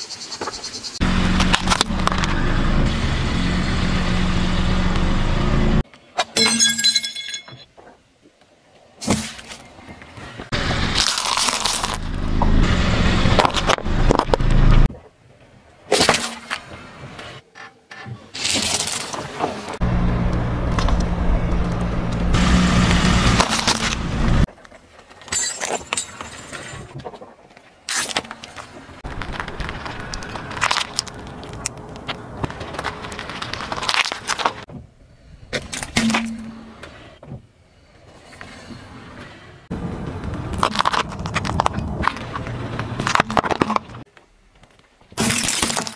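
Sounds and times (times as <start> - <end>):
low engine hum: 1.0 - 5.8, 11.8 - 14.9, 19.8 - 24.5
tyre crushing plastic toys: 10.9 - 12.1, 45.1 - 45.9.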